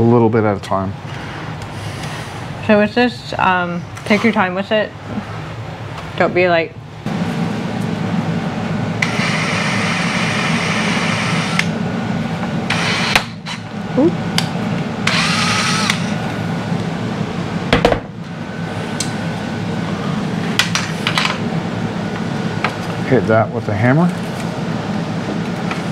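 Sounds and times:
power drill drilling into plastic: 15.1s - 16.1s.

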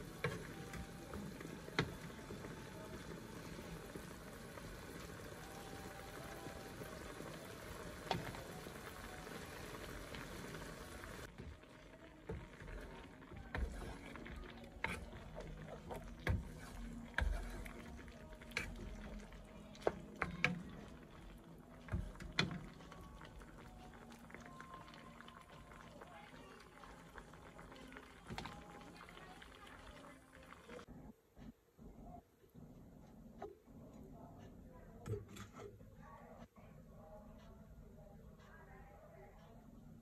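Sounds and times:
curry simmering in a pan: 0.0s - 30.9s
wooden spoon scraping a pan: 12.3s - 20.9s.

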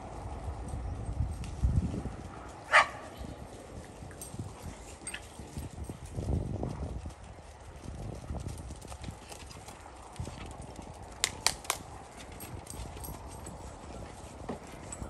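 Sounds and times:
dog paws scampering on wood chips: 0.2s - 15.0s
sharp clicks: 11.2s - 11.8s.

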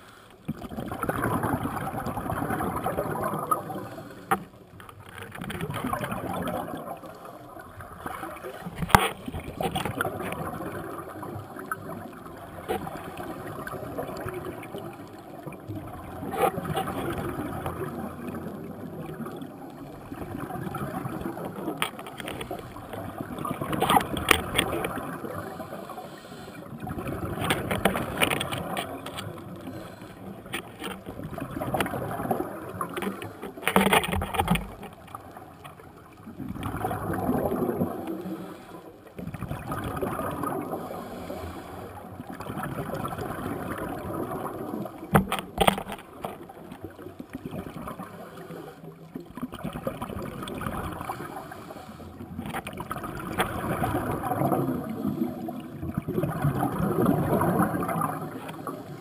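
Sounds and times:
exhaled bubbles rushing: 0.5s - 4.0s, 5.3s - 25.9s, 26.7s - 33.3s, 36.2s - 38.4s, 39.2s - 41.2s, 42.2s - 45.1s, 49.3s - 51.7s, 52.4s - 59.0s
diver regulator breathing underwater: 25.2s - 28.8s, 29.4s - 30.6s, 38.0s - 38.9s, 40.6s - 42.0s, 51.1s - 52.4s.

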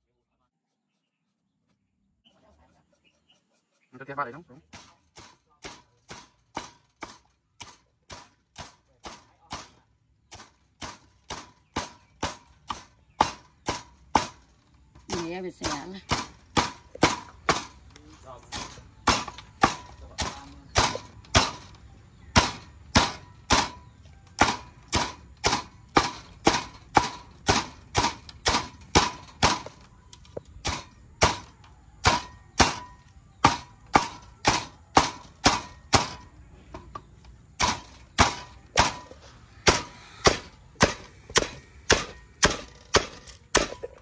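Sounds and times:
knife chopping on a board: 39.6s - 43.8s.

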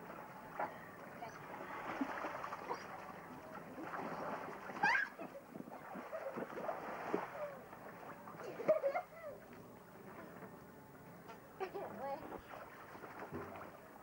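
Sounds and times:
pool water splashing: 0.0s - 14.0s
child squealing: 4.8s - 5.2s
children crying out and shouting: 4.8s - 5.3s.

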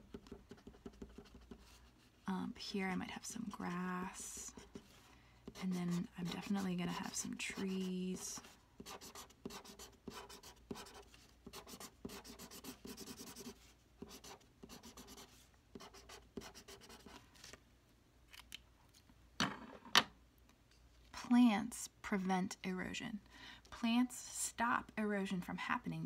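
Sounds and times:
marker scribbling on paper: 0.1s - 1.9s, 4.2s - 17.2s.

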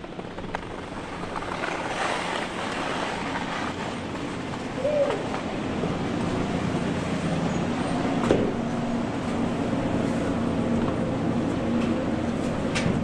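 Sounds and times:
conveyor belt humming: 3.3s - 13.0s.

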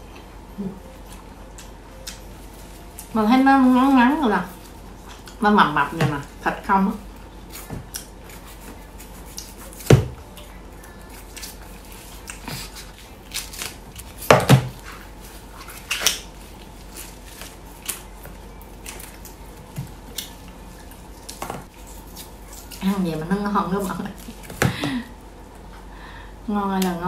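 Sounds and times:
knife cutting and scraping: 21.3s - 22.9s.

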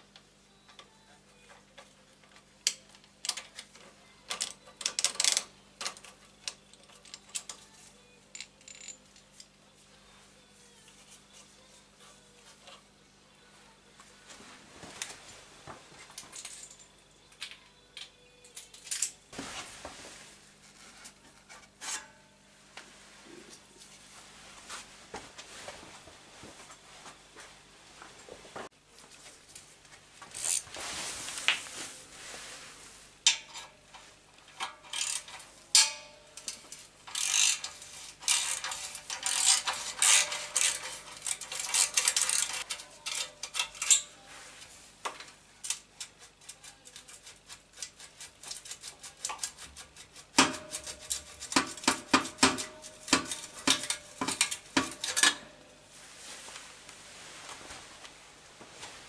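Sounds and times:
hand tools clinking on metal: 34.5s - 44.1s, 50.4s - 55.5s.

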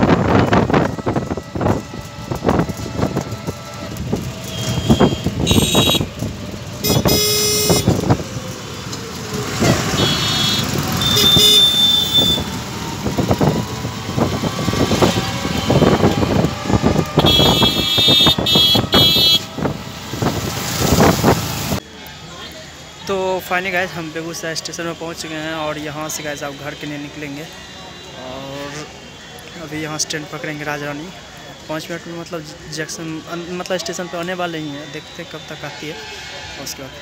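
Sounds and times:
road noise: 0.0s - 37.0s
vehicle horns honking: 2.8s - 8.2s, 9.6s - 12.8s, 14.2s - 20.4s.

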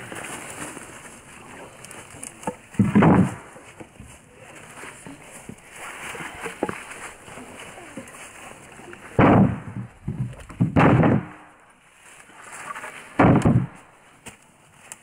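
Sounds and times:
logs thudding onto pile: 2.1s - 4.2s, 4.9s - 8.4s, 9.0s - 11.6s, 12.6s - 14.4s.

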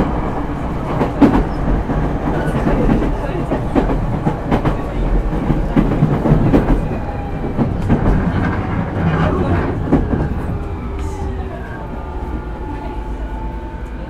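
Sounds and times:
underfloor rumble: 1.0s - 13.2s.

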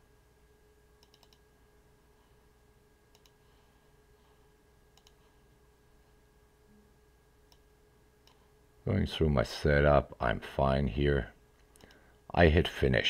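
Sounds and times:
faint steady hum: 0.0s - 13.0s
computer mouse clicks: 1.0s - 1.4s, 3.1s - 3.4s, 4.9s - 5.3s, 7.5s - 8.5s, 11.6s - 12.0s.

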